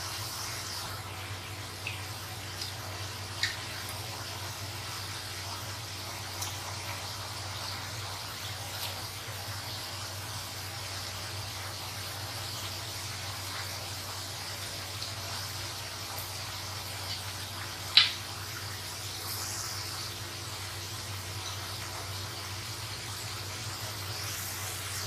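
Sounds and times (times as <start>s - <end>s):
oil sizzling: 0.0s - 25.0s.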